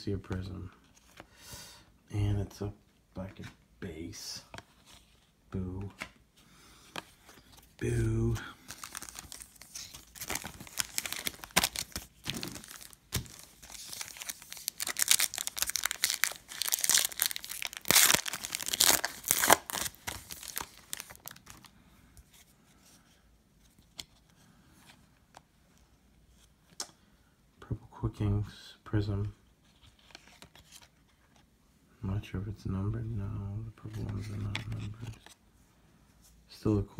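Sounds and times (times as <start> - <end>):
foil wrapper crinkling and tearing: 8.7 - 21.7.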